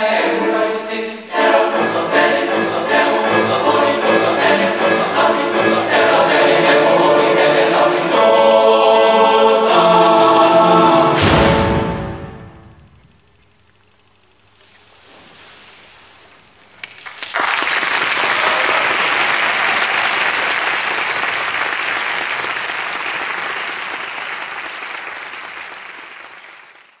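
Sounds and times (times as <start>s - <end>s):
audience applauding: 16.8s - 27.0s.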